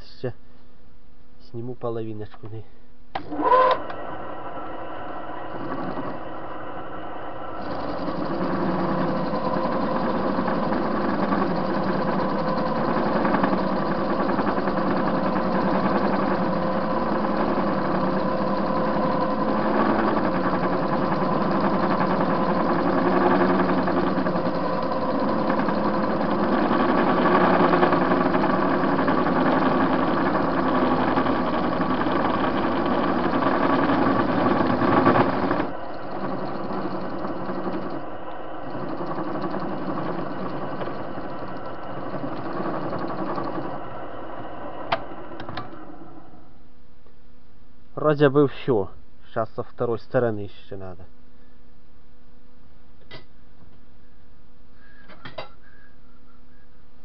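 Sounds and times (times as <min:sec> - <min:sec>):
lathe gearing humming: 0:03.2 - 0:46.8
cutter cutting metal: 0:07.6 - 0:44.0.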